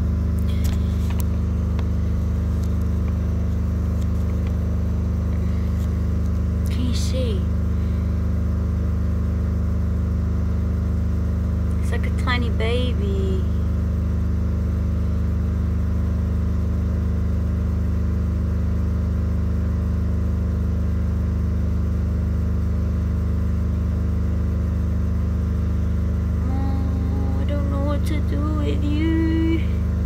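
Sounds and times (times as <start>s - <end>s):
low mechanical hum: 0.0s - 30.0s.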